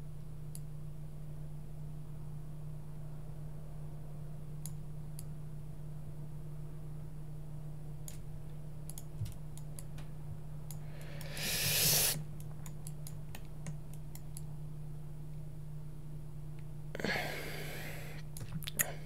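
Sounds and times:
low electrical hum: 0.0s - 19.0s
computer mouse clicks: 8.9s - 10.0s, 12.4s - 14.5s
short hiss: 11.1s - 12.2s.

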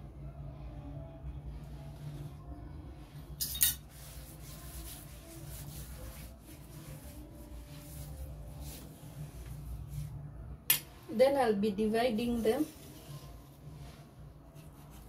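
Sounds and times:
metal spoon clinking: 3.4s - 3.8s.

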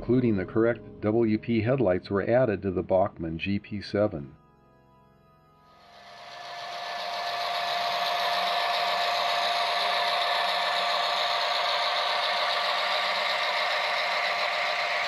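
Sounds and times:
thin steady whine: 5.6s - 15.0s
model locomotives whirring and rattling: 5.8s - 15.0s.

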